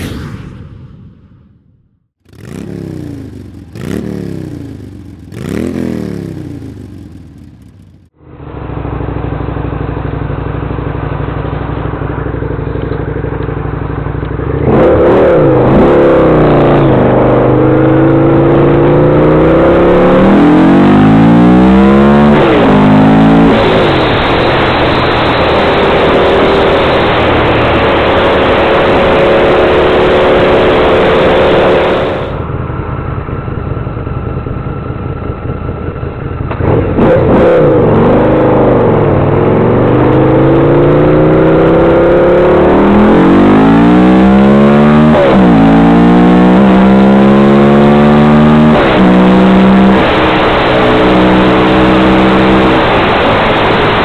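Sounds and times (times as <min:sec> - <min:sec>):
falling whooshes: 0:00.0 - 0:01.8
wind and road noise: 0:00.0 - 0:54.0
motorcycle engine revving: 0:02.1 - 0:54.0.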